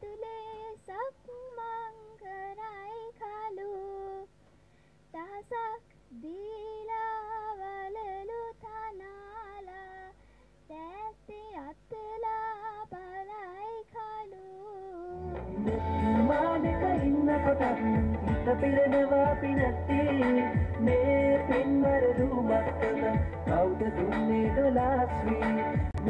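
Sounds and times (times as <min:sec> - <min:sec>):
girl singing unaccompanied: 0:00.0 - 0:04.4, 0:05.1 - 0:23.7
loud music: 0:15.3 - 0:26.0.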